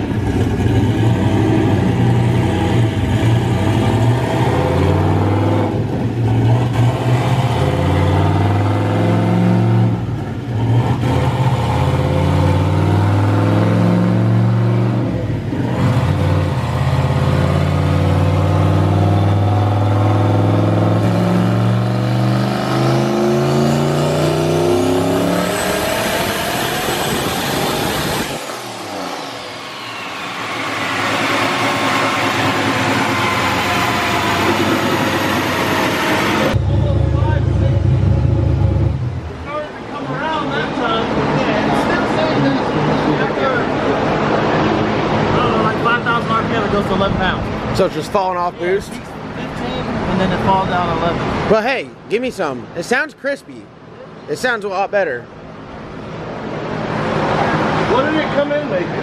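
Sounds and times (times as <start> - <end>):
thin rising whistle: 28.4 - 36.6.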